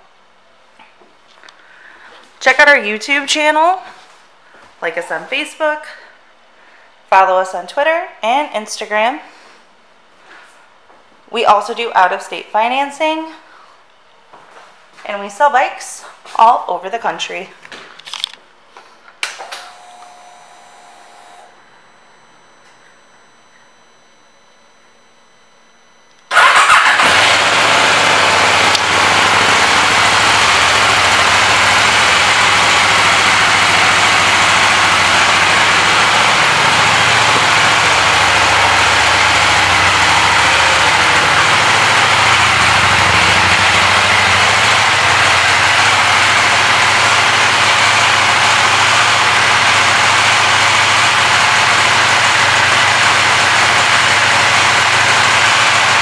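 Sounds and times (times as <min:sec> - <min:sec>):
motorcycle engine idling: 0:26.3 - 0:56.0.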